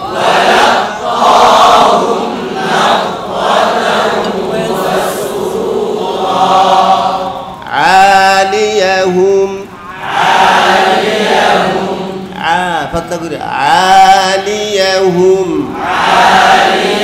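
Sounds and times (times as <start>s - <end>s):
group of voices chanting: 0.0s - 7.8s, 9.8s - 12.6s, 15.8s - 17.0s
man reciting melodically: 0.0s - 17.0s.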